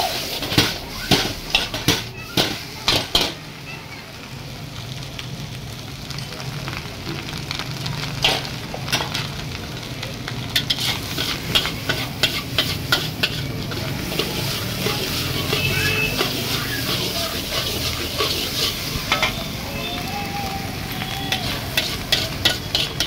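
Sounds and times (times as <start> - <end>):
frying sizzle: 0.0 - 23.0
metal spatula clanking on wok: 0.4 - 3.4, 10.6 - 19.4, 21.3 - 23.0.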